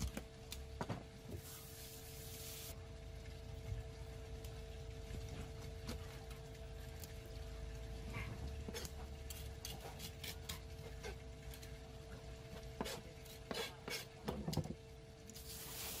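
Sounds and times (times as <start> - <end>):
steady hum: 0.0 - 16.0
knife scraping on cutting board: 12.8 - 14.2.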